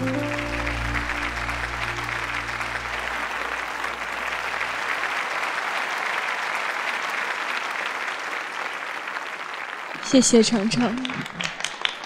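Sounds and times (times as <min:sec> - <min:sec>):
low sustained music chord: 0:00.0 - 0:04.9
audience applauding: 0:00.0 - 0:12.0.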